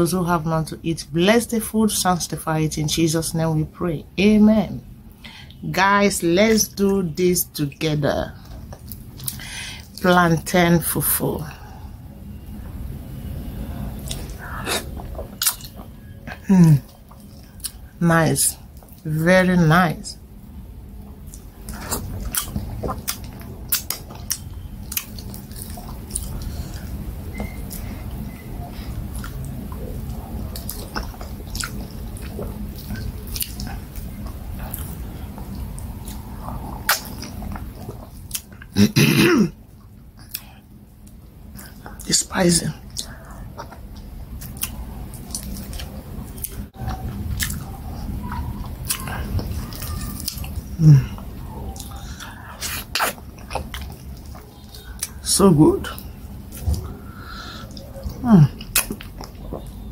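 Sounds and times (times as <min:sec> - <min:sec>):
wet chewing and smacking: 0:08.3 - 0:10.0, 0:13.9 - 0:18.0, 0:18.6 - 0:19.0, 0:20.4 - 0:38.8, 0:39.6 - 0:42.1, 0:42.8 - 0:55.2, 0:55.9 - 0:59.9
mouth clicks: 0:51.8 - 0:53.8.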